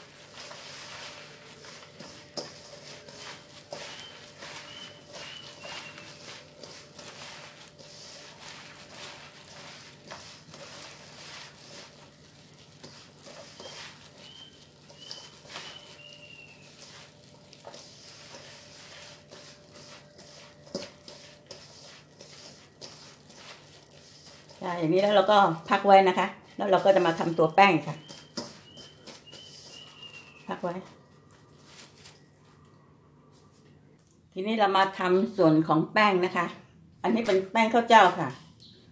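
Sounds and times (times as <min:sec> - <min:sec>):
chives rustling and squishing: 0:00.0 - 0:25.2, 0:26.8 - 0:32.7.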